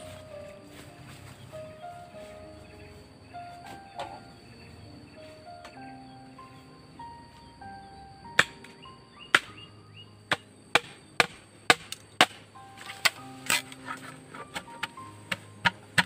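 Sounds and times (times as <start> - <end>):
soft background music: 0.0 - 16.0
machete chopping bamboo: 8.4 - 9.6, 10.3 - 16.0.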